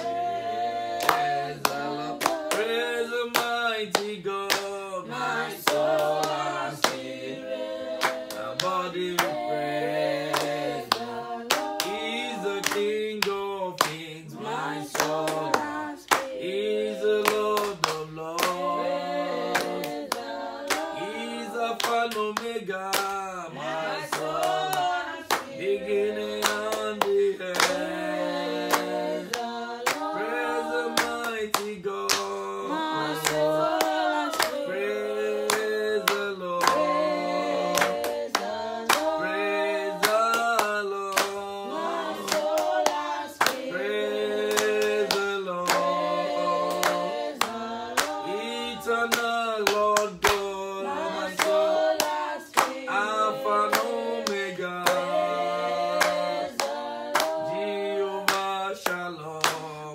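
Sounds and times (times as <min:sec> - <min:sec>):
hands clapping: 0:00.9 - 0:04.8, 0:05.6 - 0:07.2, 0:08.0 - 0:09.5, 0:10.3 - 0:14.2, 0:14.9 - 0:16.4, 0:17.1 - 0:23.3, 0:24.0 - 0:25.6, 0:26.2 - 0:59.9
man singing: 0:02.5 - 0:05.1, 0:11.8 - 0:16.0, 0:21.0 - 0:23.6, 0:30.2 - 0:33.3, 0:48.3 - 0:51.0, 0:58.0 - 0:59.9.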